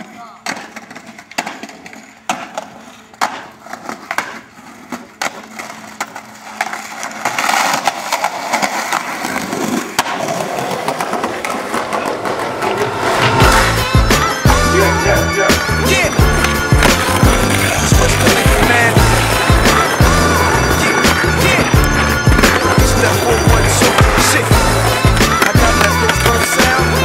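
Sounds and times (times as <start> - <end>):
skateboard clacking on concrete: 0.0 - 27.0
skateboard wheels rolling: 0.0 - 27.0.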